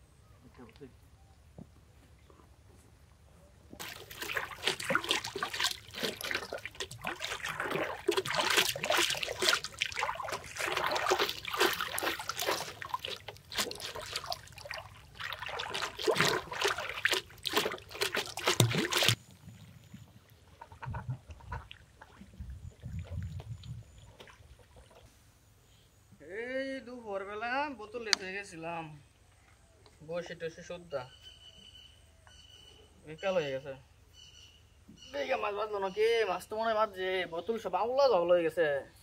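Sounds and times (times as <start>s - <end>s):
water splashing and sloshing: 3.7s - 25.3s.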